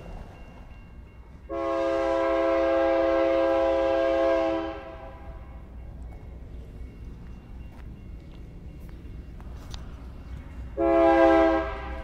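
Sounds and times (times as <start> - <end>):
train rumble: 0.0 - 12.0
locomotive air horn: 1.5 - 5.4, 10.8 - 12.0.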